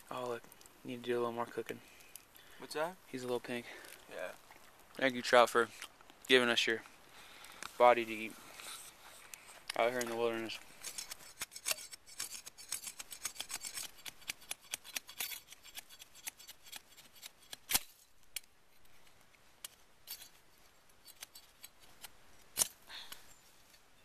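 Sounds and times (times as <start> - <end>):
wood snapping: 16.7 - 18.5.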